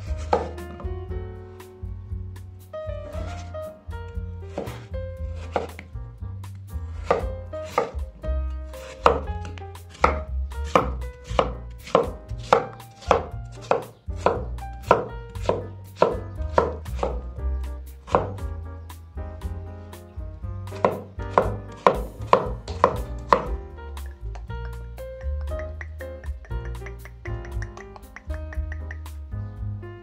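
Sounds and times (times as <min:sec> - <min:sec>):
cleaver chopping on wooden board: 0:04.5 - 0:05.9, 0:07.0 - 0:08.0, 0:08.8 - 0:17.2, 0:18.1 - 0:18.4, 0:20.7 - 0:23.6.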